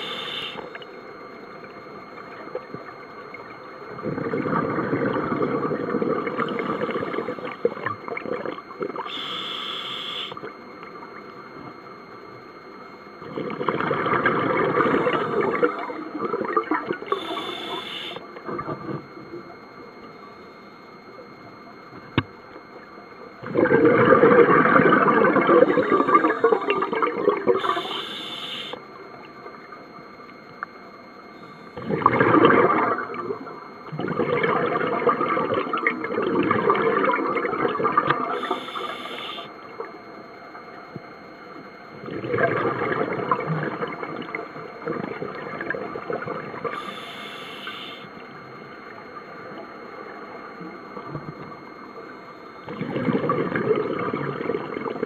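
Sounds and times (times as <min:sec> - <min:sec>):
regulator hissing breath: 0:00.0 - 0:00.7, 0:09.1 - 0:10.4, 0:17.1 - 0:18.2, 0:27.6 - 0:28.8, 0:38.4 - 0:39.5, 0:46.7 - 0:48.1
air bubbles rumbling underwater: 0:03.8 - 0:09.0, 0:13.2 - 0:17.1, 0:23.4 - 0:27.7, 0:31.8 - 0:38.4, 0:41.9 - 0:46.7, 0:52.6 - 0:55.0.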